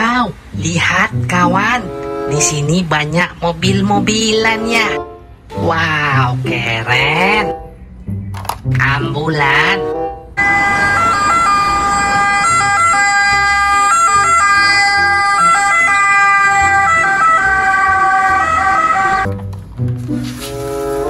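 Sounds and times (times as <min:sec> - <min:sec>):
two-tone ambulance siren: 0:10.4 - 0:19.3.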